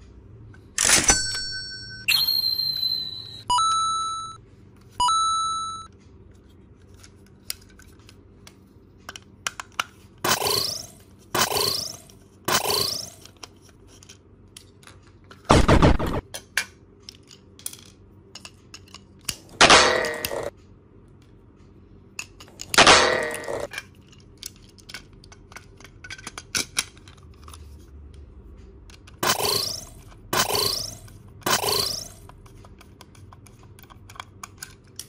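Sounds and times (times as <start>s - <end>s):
plastic toy parts clicking: 6.9s - 15.4s, 16.3s - 20.4s, 22.2s - 27.7s, 28.9s - 35.0s.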